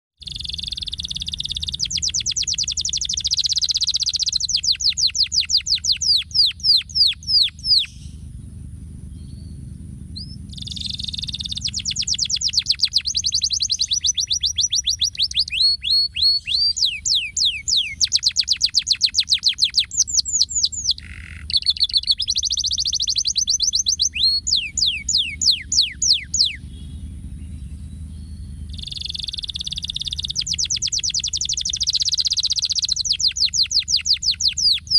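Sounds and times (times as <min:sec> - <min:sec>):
canary singing: 0:00.2 - 0:34.9
low rumble: 0:05.9 - 0:18.4, 0:19.8 - 0:33.4.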